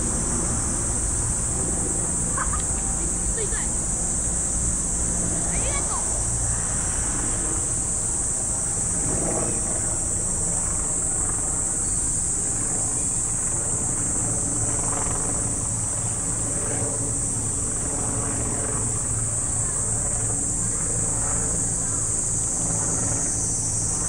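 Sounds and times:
road traffic rumble: 0.0s - 16.4s
cicada chorus buzzing: 0.0s - 24.0s.

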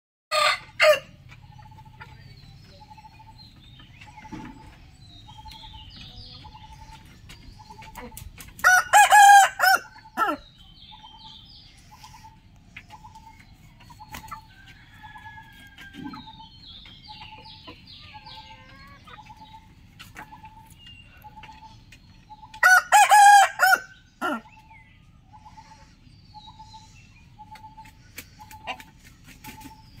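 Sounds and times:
small birds twittering: 1.2s - 30.0s
rooster crowing: 8.6s - 10.4s, 22.6s - 24.4s.

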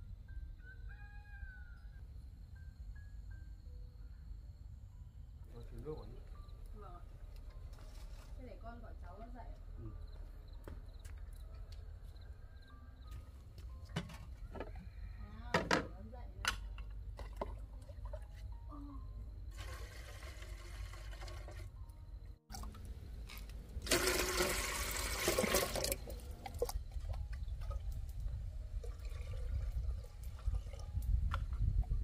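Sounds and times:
water pouring into metal kettle: 19.5s - 21.7s, 23.8s - 26.7s, 28.8s - 31.1s.

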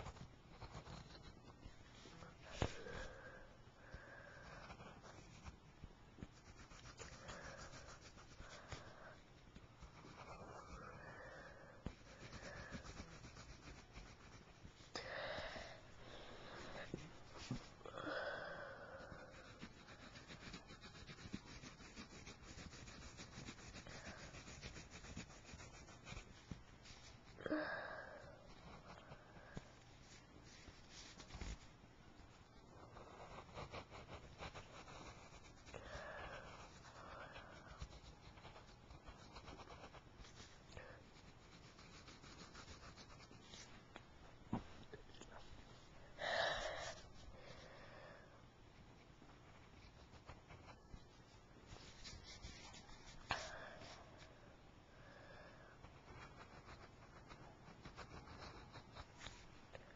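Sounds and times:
pencil scratching on paper: 0.0s - 14.9s, 16.2s - 27.4s, 28.0s - 43.8s, 49.4s - 54.4s, 55.8s - 59.9s
breathy hiss: 2.0s - 4.7s, 14.8s - 19.7s, 45.2s - 48.4s.

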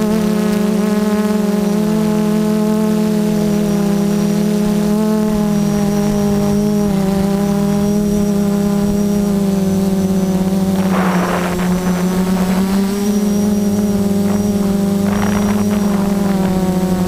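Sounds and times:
quadcopter motors buzzing: 0.0s - 17.0s
gusty wind rushes: 7.6s - 17.0s.

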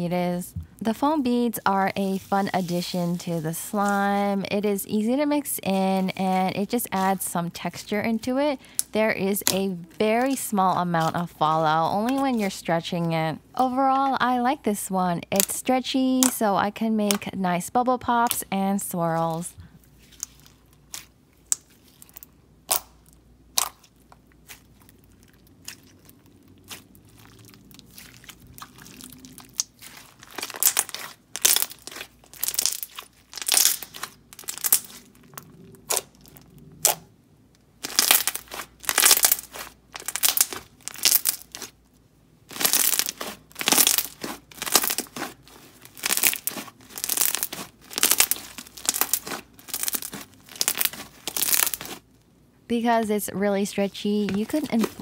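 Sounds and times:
slime squished by hand: 20.0s - 37.0s, 37.8s - 41.8s, 42.5s - 52.0s, 54.3s - 55.0s.

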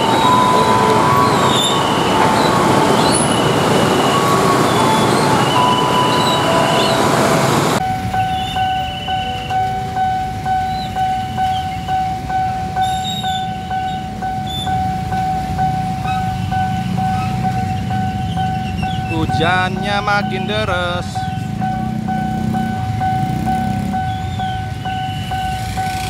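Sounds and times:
rain: 0.0s - 9.5s
level-crossing warning bell ringing: 0.0s - 26.0s
motorcycles idling: 0.0s - 26.0s
train wheels squealing on rails: 0.0s - 26.0s.

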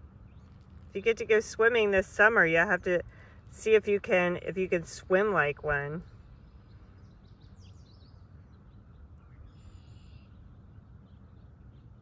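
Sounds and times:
low background noise: 0.0s - 12.0s
distant bird chirps: 6.0s - 12.0s.

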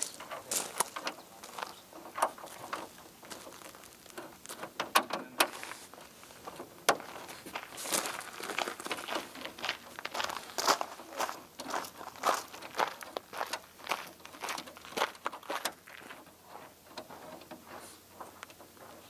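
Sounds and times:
small clicks and knocks: 0.0s - 7.1s.

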